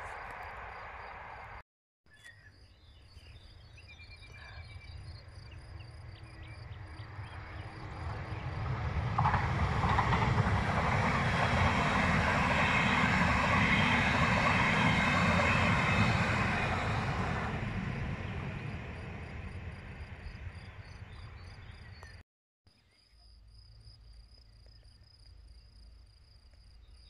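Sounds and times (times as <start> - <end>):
train rumbling past: 0.0 - 1.6, 4.7 - 22.2
wheels rushing on rails: 0.0 - 1.6, 5.0 - 22.2.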